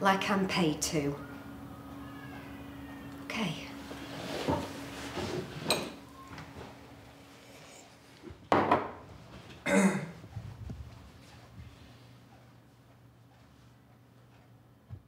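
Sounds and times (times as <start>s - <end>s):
knocks and thuds in room: 8.4s - 9.0s.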